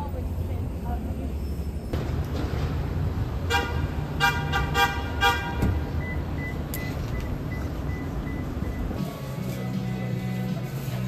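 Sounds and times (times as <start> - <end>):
street traffic rumbling: 0.0 - 11.0
car horn honks: 3.4 - 6.0.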